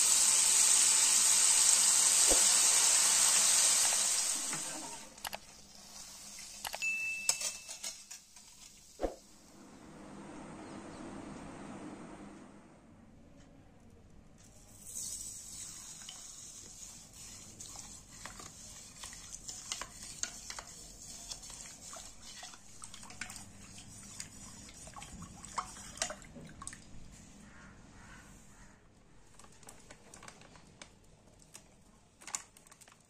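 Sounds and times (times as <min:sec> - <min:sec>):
spoon clinking against steel bowl: 0:06.8 - 0:08.1.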